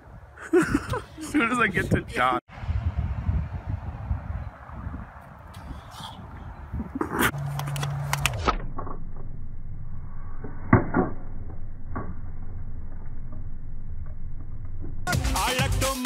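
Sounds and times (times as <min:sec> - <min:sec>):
low hum dropping in pitch: 0:06.3 - 0:15.1.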